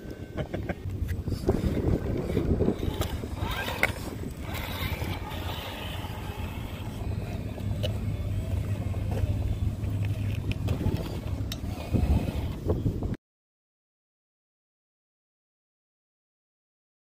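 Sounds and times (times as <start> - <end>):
steady low rumble: 0.0 - 13.2
small electric motor and gears: 0.1 - 13.1.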